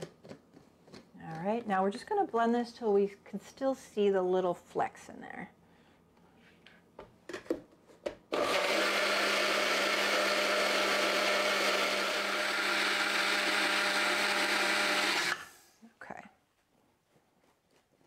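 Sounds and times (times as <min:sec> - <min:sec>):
blender motor humming: 0:08.3 - 0:15.5.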